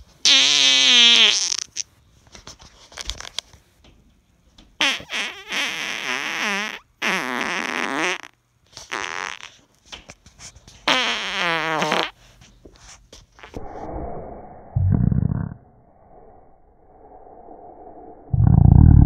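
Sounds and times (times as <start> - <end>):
loud farts: 0.2 - 1.8, 4.8 - 9.6, 10.8 - 12.2, 14.9 - 15.6.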